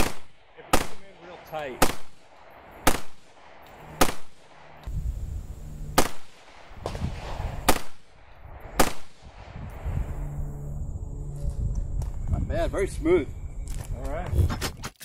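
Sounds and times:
rifle shots with echo: 0.0 - 4.8, 6.0 - 9.6.

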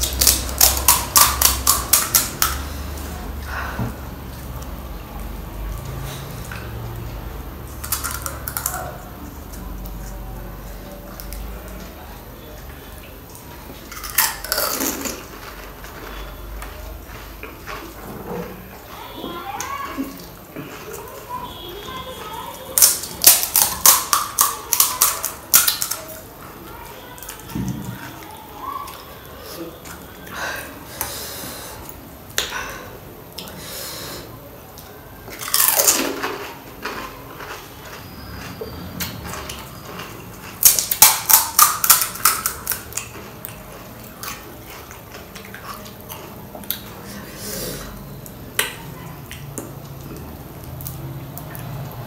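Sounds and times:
chewing crackles: 4.2 - 30.3, 34.7 - 52.0
crisp crunch of biting: 7.7 - 10.2, 13.8 - 18.0, 35.3 - 46.9.

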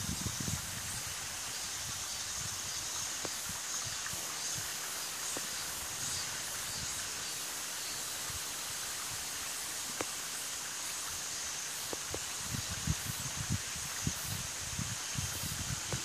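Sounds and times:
outdoor background hiss: 0.0 - 16.0
faint ticks: 9.9 - 10.2.

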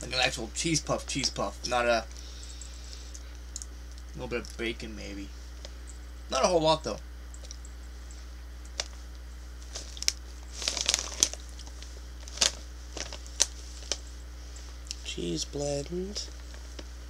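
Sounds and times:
foil snack bag crinkling: 9.6 - 14.0.

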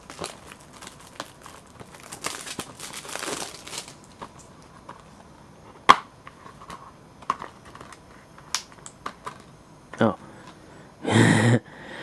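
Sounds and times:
cellophane crinkling: 0.0 - 5.1.

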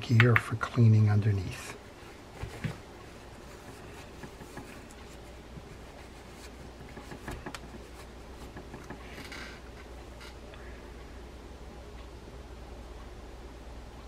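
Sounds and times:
cloth rubbing on metal: 2.0 - 9.4.

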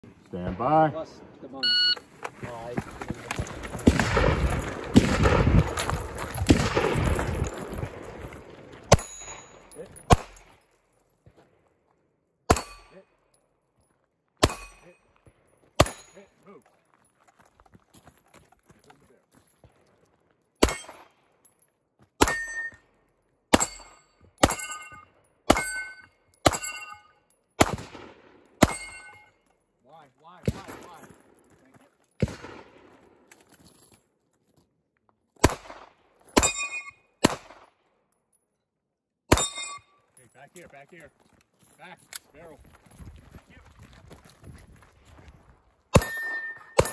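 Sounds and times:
pistol shots: 3.7 - 10.6, 14.4 - 14.9, 15.8 - 16.2, 20.6 - 21.1, 27.6 - 29.2, 32.2 - 33.0, 35.4 - 37.8, 39.3 - 39.7, 45.9 - 46.9
metallic ring of steel target: 8.9 - 10.5, 12.5 - 13.1, 14.4 - 15.1, 15.8 - 16.3, 20.6 - 21.0, 22.2 - 22.8, 23.6 - 27.3, 28.6 - 29.4, 36.4 - 37.1, 39.3 - 40.0, 46.0 - 46.9.

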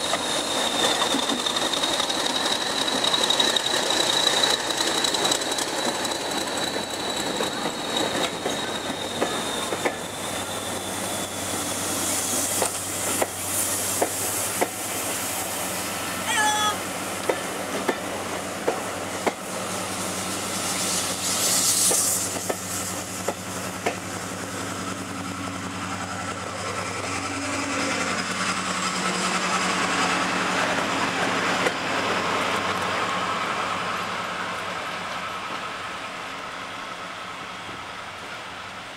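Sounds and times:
train wheels clicking over rail joints: 0.0 - 10.6, 12.3 - 15.3, 17.2 - 19.5, 21.1 - 24.3
diesel locomotive passing: 0.0 - 38.9
brief hiss: 20.2 - 23.4.

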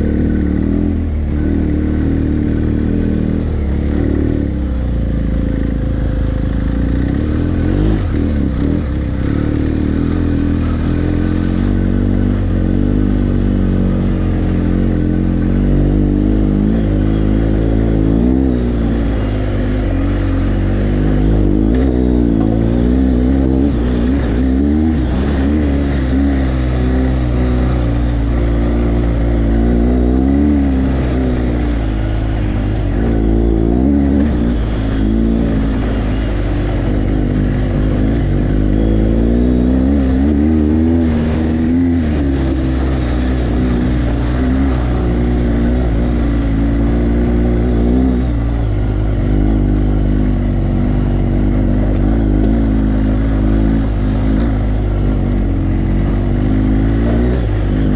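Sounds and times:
motorcycle engine revving: 0.0 - 57.9.

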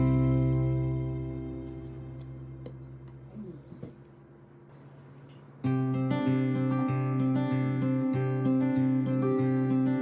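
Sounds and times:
acoustic guitar music: 0.0 - 3.3, 5.6 - 10.0.

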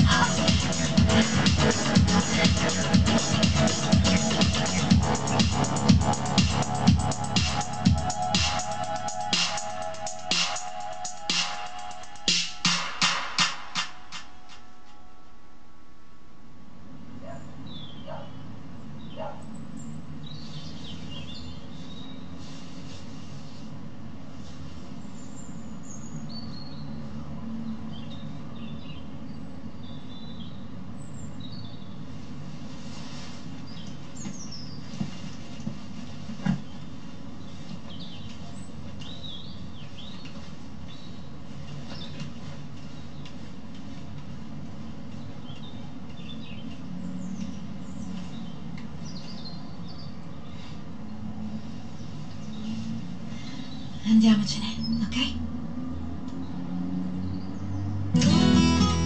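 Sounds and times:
low background rumble: 0.0 - 12.3
low city rumble: 0.0 - 59.0
small birds chirping: 17.2 - 23.8, 24.5 - 55.4.

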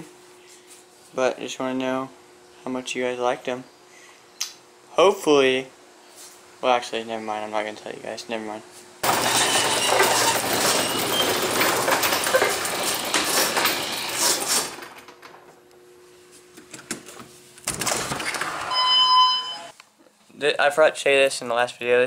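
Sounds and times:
garage door rattling shut: 9.0 - 15.6, 17.6 - 19.0
short electronic beep: 18.7 - 19.7.

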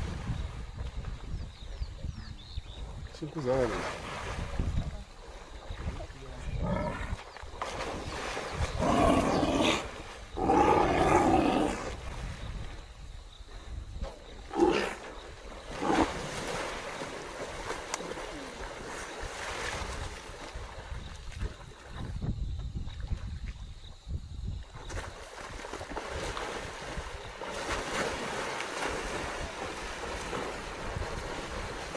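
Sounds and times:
splashing water: 3.4 - 10.3, 14.5 - 22.0, 24.8 - 31.9.

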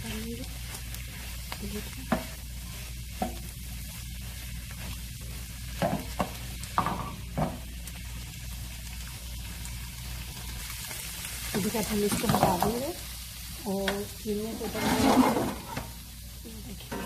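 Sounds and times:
vegetables sizzling in oil: 0.0 - 17.0
wooden spatula knocking pan: 2.0 - 2.4, 3.1 - 3.5, 5.7 - 7.6.

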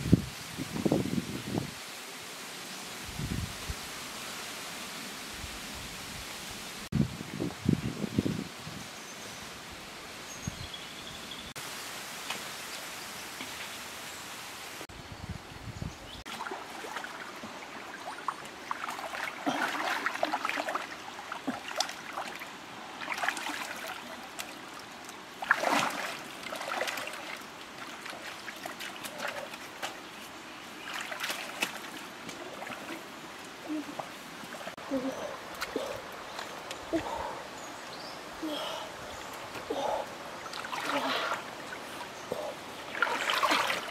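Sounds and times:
steady outdoor hiss: 0.0 - 43.9
water splashing and sloshing: 16.2 - 37.9, 38.5 - 43.9.

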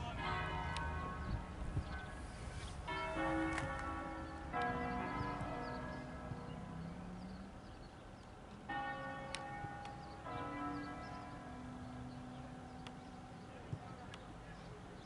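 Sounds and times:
bells ringing: 0.0 - 2.2, 2.8 - 7.5, 8.7 - 13.6.

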